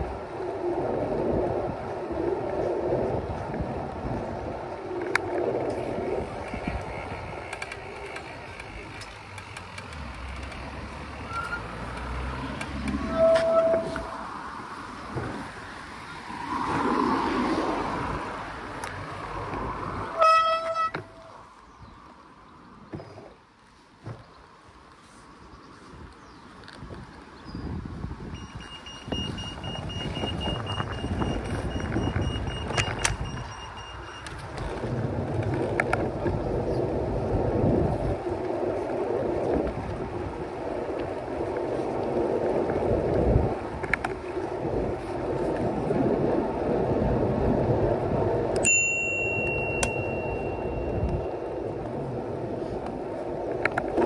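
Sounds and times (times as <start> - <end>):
bicycle tyre rumble: 0.0 - 54.0
high ringing tone: 28.4 - 34.4, 48.6 - 51.8
steady high tone: 48.6 - 51.8.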